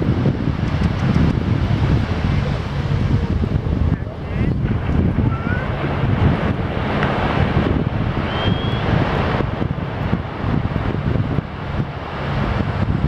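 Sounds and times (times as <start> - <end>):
surf washing: 0.0 - 13.0
wind buffeting microphone: 0.0 - 13.0
faint whistle-like rising tones: 8.2 - 8.9.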